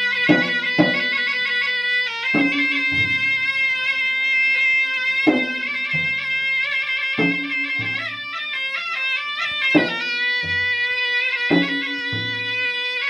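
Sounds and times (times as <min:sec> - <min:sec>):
reed pipe melody: 0:00.0 - 0:13.0
deep barrel drum strokes: 0:02.4 - 0:03.5.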